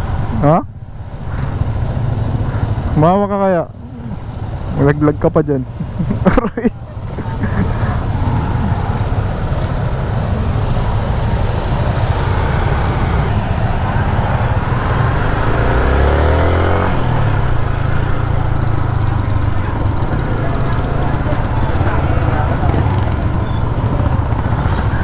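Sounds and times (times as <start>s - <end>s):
road noise: 0.0s - 25.0s
motorcycle engine: 7.9s - 25.0s.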